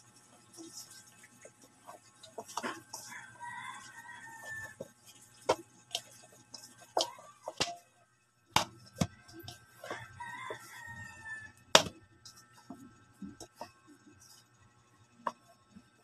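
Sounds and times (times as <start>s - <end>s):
dough kneaded in a steel bowl: 0.0s - 16.0s
rooster crowing: 2.6s - 4.9s, 7.0s - 7.8s, 9.1s - 11.7s.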